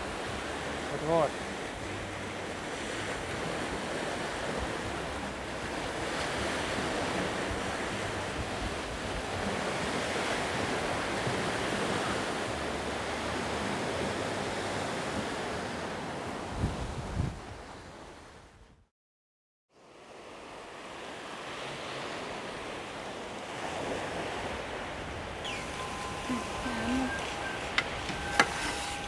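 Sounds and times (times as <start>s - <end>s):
sea waves washing ashore: 0.0s - 18.6s, 19.7s - 29.0s
wind rumble on microphone: 0.0s - 18.9s.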